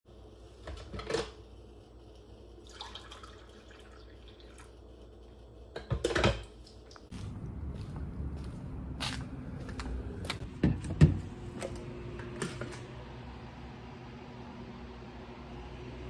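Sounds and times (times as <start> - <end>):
coffee pouring into mug: 2.6 - 4.8.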